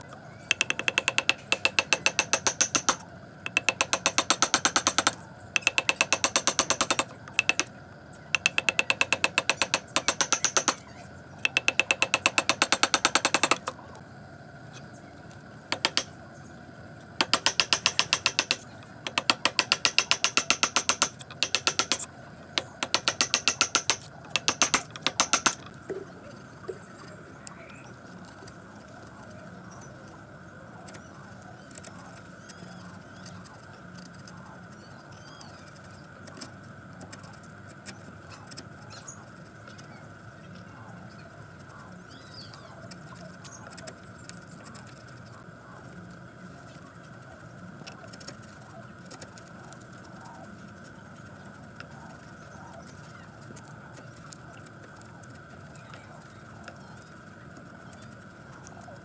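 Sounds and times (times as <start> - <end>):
hammer striking steel chisel: 0.5 - 7.7, 8.4 - 10.8, 11.4 - 13.7, 15.7 - 16.1, 17.2 - 22.0, 22.6 - 25.6.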